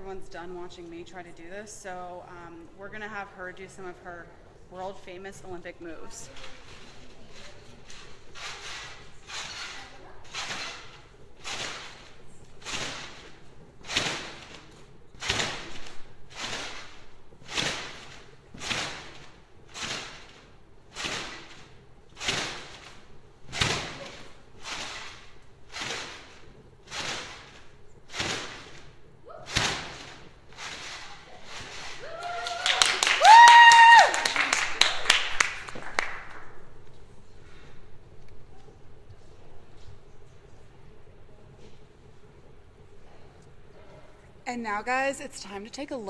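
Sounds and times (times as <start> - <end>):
trampoline bouncing thumps: 4.8 - 32.6.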